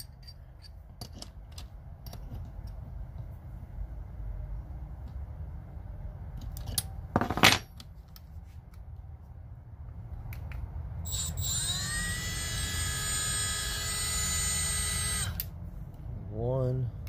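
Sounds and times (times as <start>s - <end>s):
die grinder high whine: 11.1s - 15.4s.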